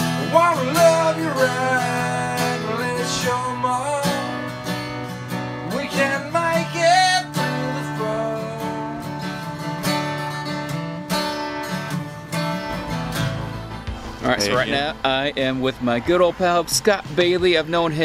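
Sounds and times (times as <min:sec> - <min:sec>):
man singing: 0:00.0 - 0:04.5, 0:05.6 - 0:09.3
acoustic guitar strumming: 0:00.0 - 0:18.0.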